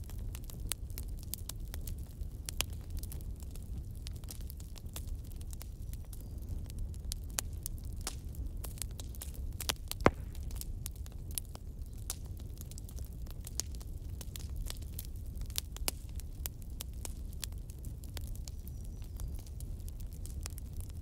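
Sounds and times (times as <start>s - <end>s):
wood fire crackling and popping: 0.0s - 21.0s.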